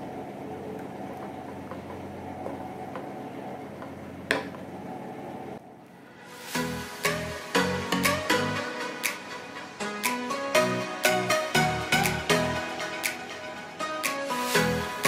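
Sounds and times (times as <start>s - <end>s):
background music: 6.1s - 15.0s.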